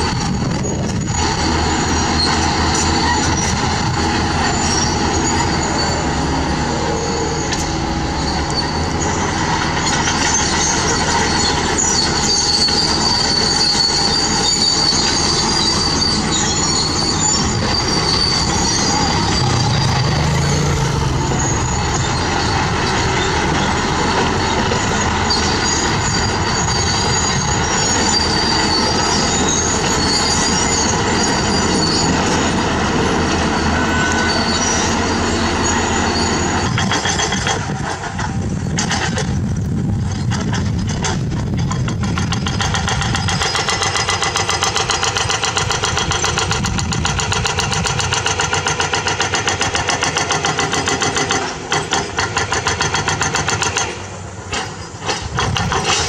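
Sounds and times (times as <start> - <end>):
high-pitched metallic squeals: 0.0 - 37.8
diesel engines running: 0.0 - 56.0.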